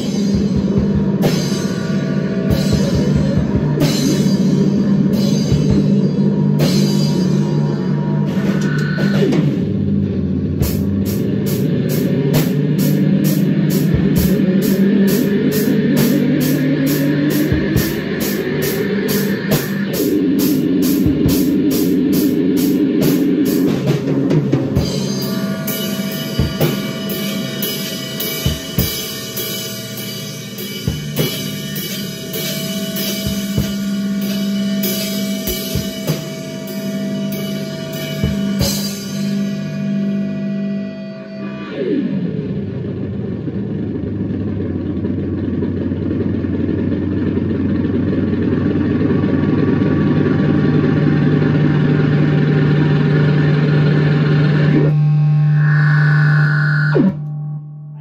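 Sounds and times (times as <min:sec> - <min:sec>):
droning electric guitar: 0:00.0 - 0:58.0
scattered drum hits: 0:23.0 - 0:36.7, 0:37.3 - 0:39.5
cymbal strokes: 0:24.8 - 0:40.3.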